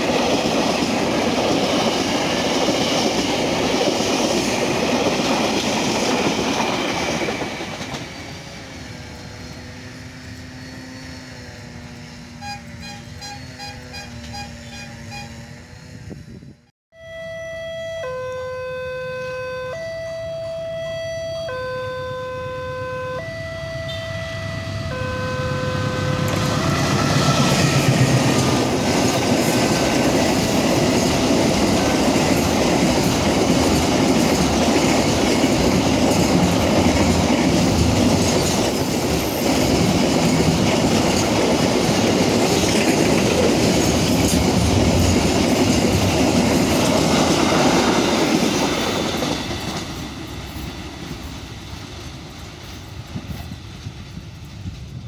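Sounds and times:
freight train rumbling past: 0:00.0 - 0:16.7, 0:22.7 - 0:55.0
locomotive horn two-tone blasts: 0:12.3 - 0:15.7, 0:17.0 - 0:28.5.

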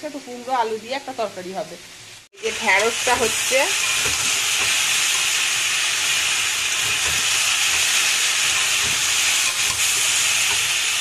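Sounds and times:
curry sizzling in oil: 0:00.0 - 0:11.0
spatula stirring: 0:02.6 - 0:11.0.

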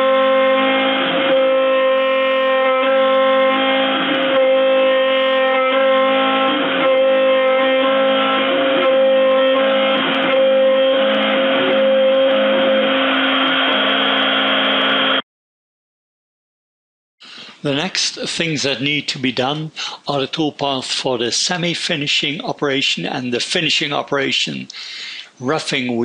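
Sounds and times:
router spindle high whine: 0:03.0 - 0:15.2.

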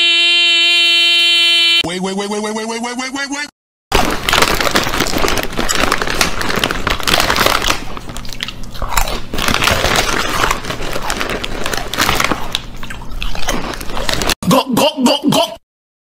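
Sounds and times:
man chewing crunchy chips: 0:03.9 - 0:14.4.

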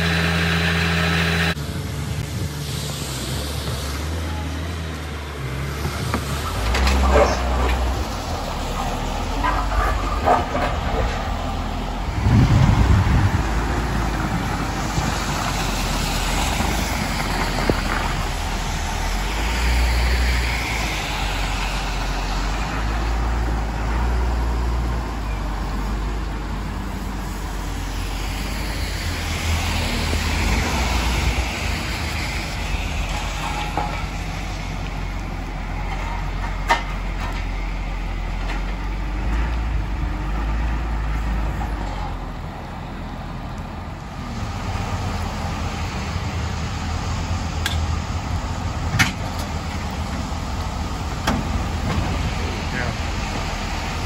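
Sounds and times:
low traffic rumble: 0:00.0 - 0:54.0
vehicles passing on wet road: 0:00.0 - 0:54.0.

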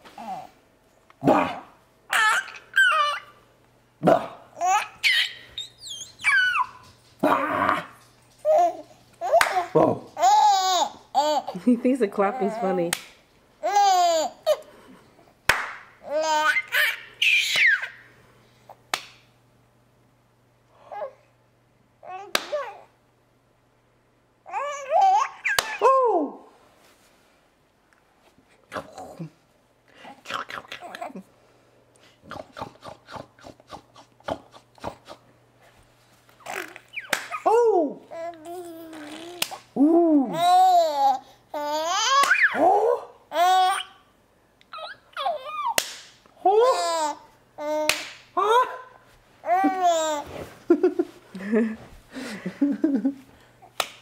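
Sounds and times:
baby laughing: 0:01.5 - 0:03.4, 0:04.6 - 0:11.6, 0:13.6 - 0:14.7, 0:16.0 - 0:18.0, 0:24.5 - 0:25.9, 0:36.4 - 0:37.5, 0:38.1 - 0:39.6, 0:40.3 - 0:44.0, 0:44.7 - 0:45.8, 0:46.4 - 0:51.5
hand clap: 0:09.4 - 0:09.7, 0:15.5 - 0:15.9, 0:18.9 - 0:19.2, 0:22.3 - 0:22.6, 0:37.1 - 0:37.4, 0:45.8 - 0:46.2, 0:47.9 - 0:48.3, 0:53.8 - 0:54.0.

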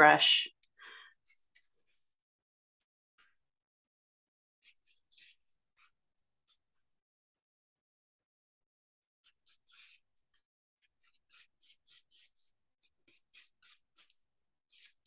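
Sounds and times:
paintbrush swishing on wood: 0:13.1 - 0:15.0.

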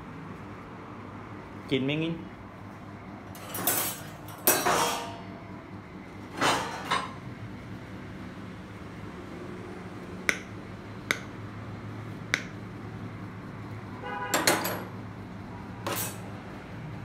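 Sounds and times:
steady low hum: 0:00.0 - 0:14.1
metallic clatter with ring: 0:03.3 - 0:05.2.

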